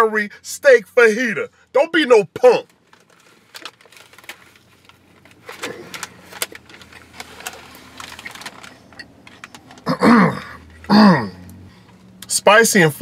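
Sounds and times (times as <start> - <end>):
low steady hum: 0.0 - 13.0
paper wrapper crinkling: 2.6 - 9.9.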